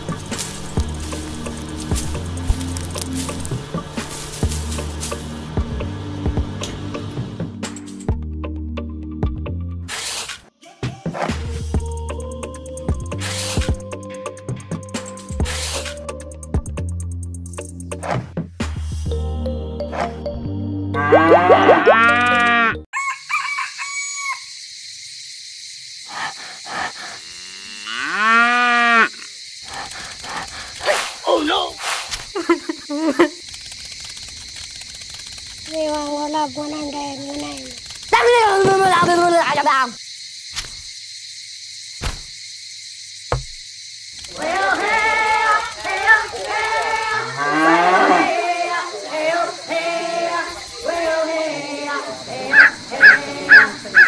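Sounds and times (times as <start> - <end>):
high-pitched cartoon voices: 21.0 - 22.7, 35.7 - 40.0, 44.3 - 54.0
rooster crow: 22.9 - 24.6, 52.3 - 54.0
cows mooing: 27.1 - 29.2, 44.4 - 48.5, 52.3 - 54.0.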